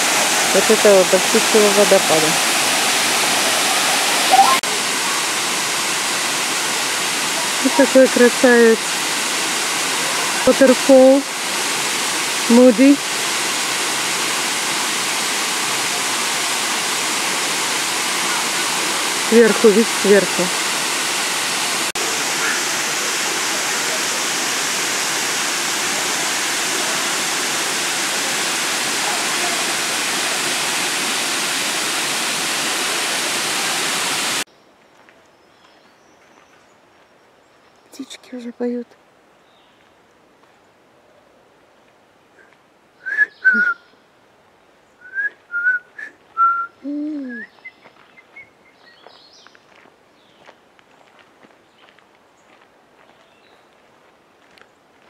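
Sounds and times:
waterfall rushing: 0:00.0 - 0:34.5
low sliding whistle: 0:03.8 - 0:04.6
short whistled notes: 0:04.3 - 0:04.6.

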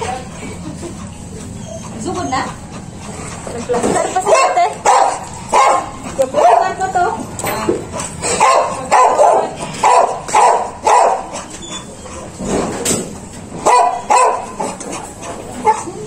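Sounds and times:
small dog barking: 0:04.3 - 0:06.7, 0:08.4 - 0:11.3, 0:13.6 - 0:14.6.

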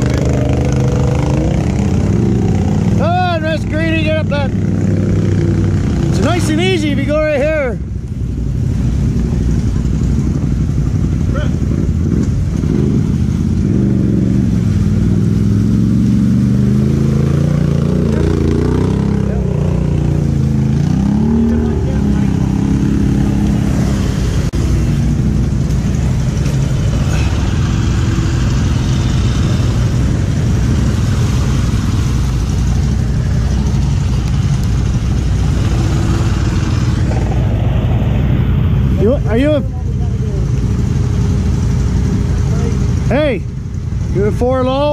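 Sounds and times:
water splashing: 0:00.0 - 0:44.1
atv engine revving: 0:00.0 - 0:44.9.

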